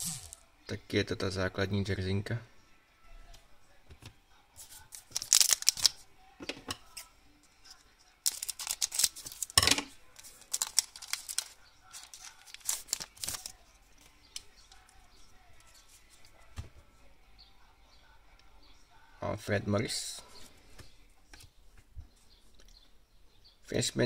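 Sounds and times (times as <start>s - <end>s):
cards being handled: 4.6s - 6.0s, 7.7s - 15.0s
foil card pack crinkling and tearing: 4.9s - 6.0s, 8.2s - 9.6s, 10.2s - 13.6s.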